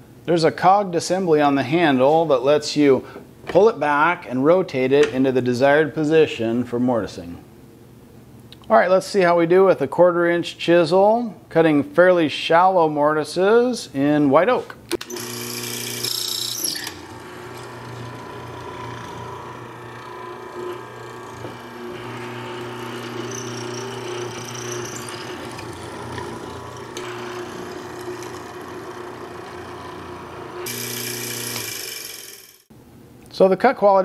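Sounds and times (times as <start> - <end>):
mortiser motor humming: 15.0 - 32.6.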